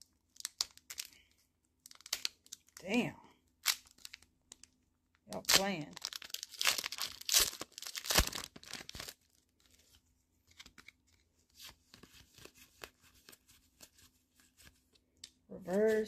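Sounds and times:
foil wrapper tearing and crinkling: 0.3s - 2.8s, 3.6s - 4.7s, 5.3s - 9.9s
faint clicks of cards handled: 9.6s - 16.0s.

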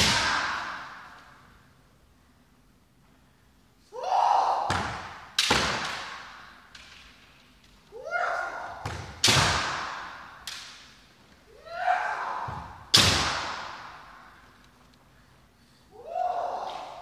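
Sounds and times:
loud shouts: 0.0s - 1.2s, 3.9s - 5.1s, 7.9s - 10.2s, 11.5s - 13.8s, 15.9s - 17.0s
bamboo sword strikes cracking: 9.2s - 10.8s, 12.9s - 13.9s.

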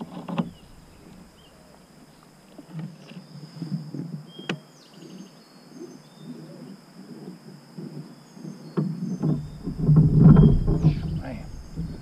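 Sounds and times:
crickets buzzing: 0.0s - 12.0s
bird chirps: 8.1s - 12.0s
anchor pole rattling and knocking: 9.2s - 12.0s.

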